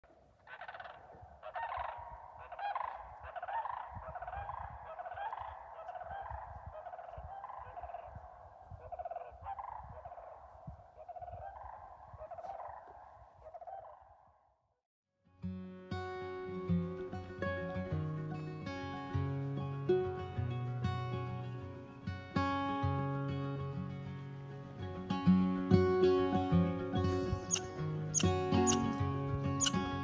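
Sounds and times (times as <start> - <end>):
cranes calling: 0.4 - 14.0, 28.2 - 28.9.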